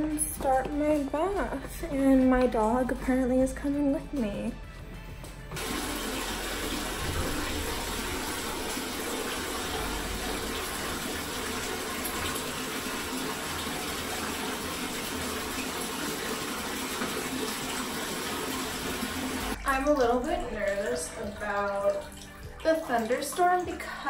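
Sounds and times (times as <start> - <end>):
bathtub tap running: 5.6 - 24.0.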